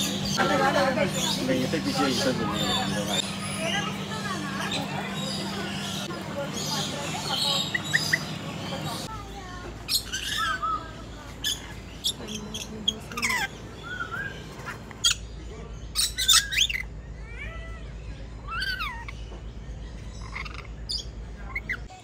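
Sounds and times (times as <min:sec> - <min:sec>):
parrots squawking and chirping: 0:00.0 - 0:09.2, 0:09.8 - 0:22.0
whistled bird notes: 0:09.9 - 0:16.9.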